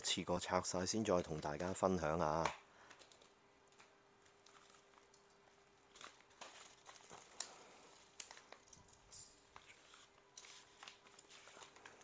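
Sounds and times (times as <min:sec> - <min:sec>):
plastic mailers crinkling: 0:02.8 - 0:12.0.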